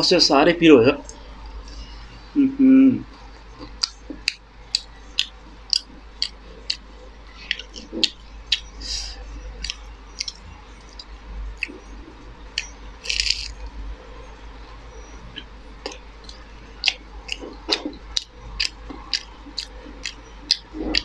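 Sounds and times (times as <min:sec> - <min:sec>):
chewing with wet mouth clicks: 0:03.1 - 0:08.8, 0:09.4 - 0:11.9, 0:12.5 - 0:13.7, 0:15.0 - 0:21.0.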